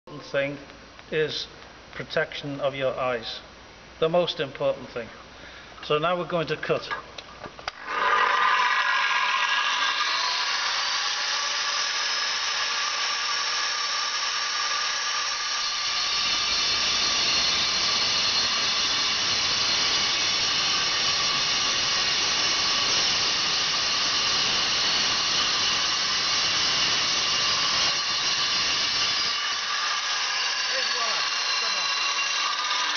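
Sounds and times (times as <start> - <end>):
angle grinder whine: 7.7 - 32.9
grinder cutting brick: 7.8 - 32.9.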